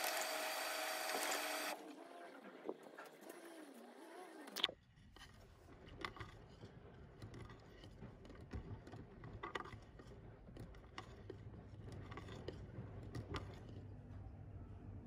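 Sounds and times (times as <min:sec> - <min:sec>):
washing machine motor hum: 0:00.0 - 0:02.0.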